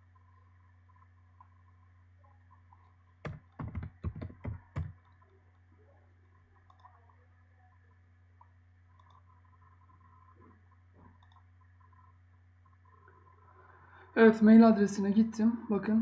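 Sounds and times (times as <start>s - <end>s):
steady low hum: 0.0s - 16.0s
computer keyboard typing: 3.2s - 5.2s.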